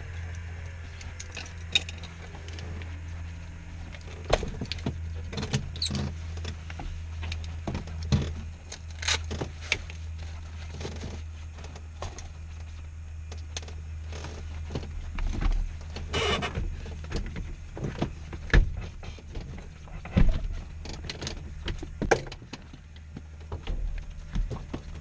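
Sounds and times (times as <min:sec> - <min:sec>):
clicks and knocks of gear: 0:00.0 - 0:25.0
steady low hum: 0:00.0 - 0:25.0
scraping rustle: 0:01.6 - 0:13.0.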